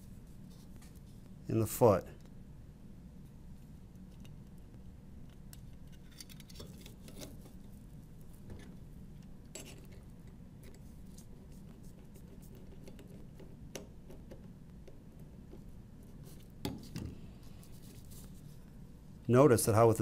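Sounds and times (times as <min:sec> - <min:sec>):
steady low hum: 0:00.0 - 0:20.0
small clicks of metal parts: 0:05.3 - 0:07.3.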